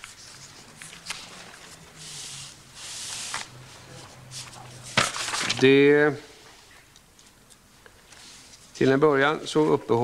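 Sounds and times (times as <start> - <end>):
paper rustling: 0.0 - 5.8.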